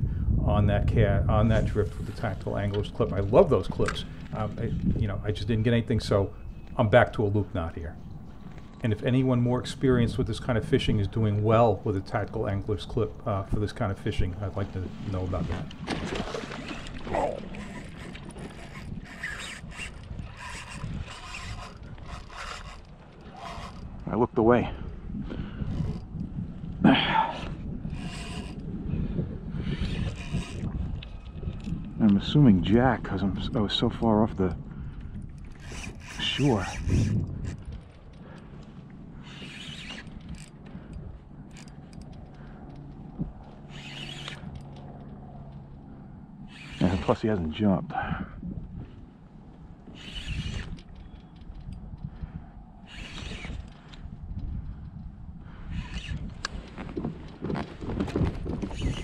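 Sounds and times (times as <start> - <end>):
fishing reel whirring and clicking: 16.5 - 24.1, 25.6 - 26.3, 27.7 - 32.0, 34.9 - 47.2, 49.8 - 57.4, 58.1 - 59.0.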